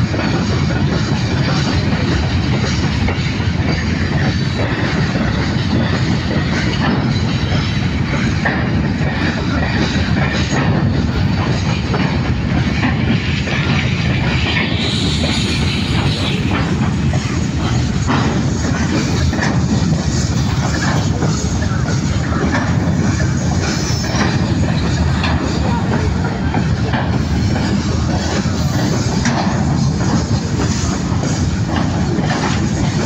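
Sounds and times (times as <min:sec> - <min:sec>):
train wheels rumbling on rail: 0:00.0 - 0:33.0
wheels clacking over rail joints: 0:00.0 - 0:33.0.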